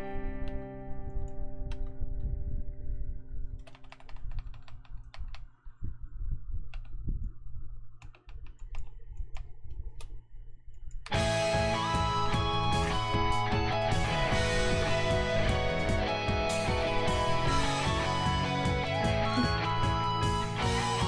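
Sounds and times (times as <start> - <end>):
keyboard and mouse clicks: 1.2 - 2.0, 3.6 - 5.7, 6.7 - 7.0, 8.0 - 11.2
song music: 11.2 - 21.0.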